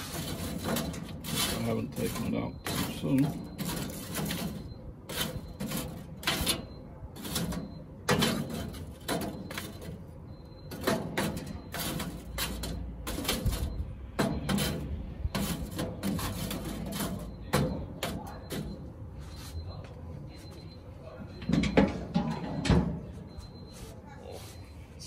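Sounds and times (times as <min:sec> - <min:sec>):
charcoal briquettes clinking and scraping: 0:00.0 - 0:19.1.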